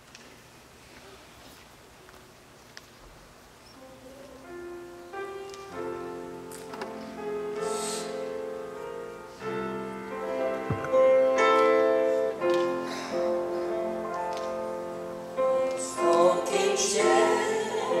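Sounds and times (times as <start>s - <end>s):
piano accompaniment: 3.8s - 18.0s
group singing a hymn: 15.4s - 18.0s.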